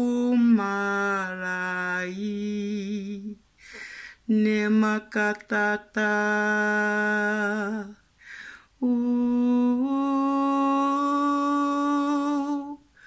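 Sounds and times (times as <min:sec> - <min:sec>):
woman singing wordless held notes: 0:00.0 - 0:03.4, 0:04.2 - 0:08.1, 0:08.8 - 0:13.0
woman drawing breath: 0:03.6 - 0:04.2, 0:08.2 - 0:08.7.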